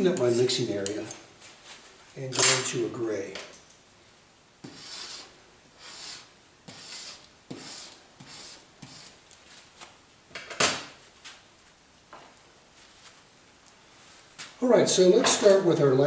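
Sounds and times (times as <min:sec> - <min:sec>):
palette knife scraping palette: 0:04.6 - 0:09.2.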